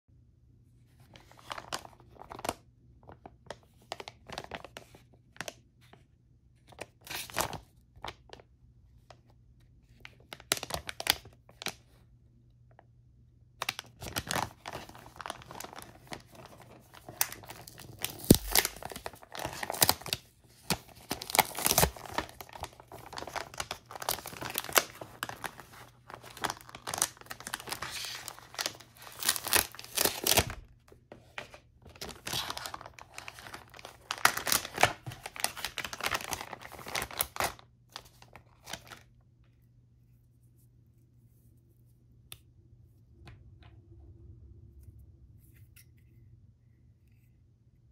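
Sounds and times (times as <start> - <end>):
plastic packaging crinkling: 10.1 - 11.8, 13.6 - 39.1.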